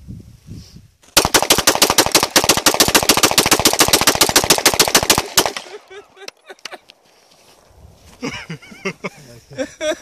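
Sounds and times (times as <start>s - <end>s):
rapid pistol shots: 1.2s - 5.9s.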